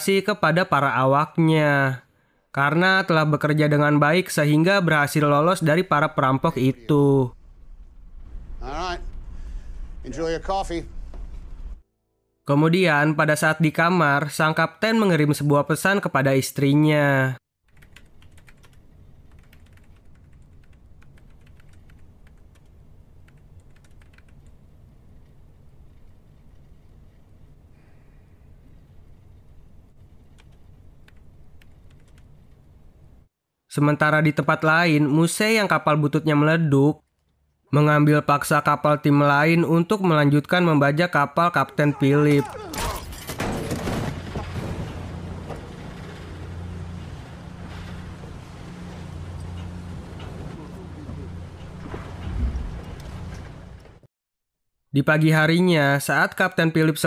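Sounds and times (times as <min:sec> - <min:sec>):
typing on a computer keyboard: 0:17.7 - 0:24.6, 0:30.2 - 0:32.3
low engine hum: 0:44.5 - 0:54.0.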